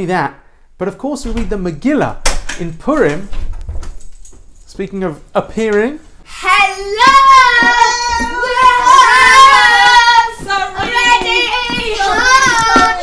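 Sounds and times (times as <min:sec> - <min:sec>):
child singing: 0:06.3 - 0:13.0.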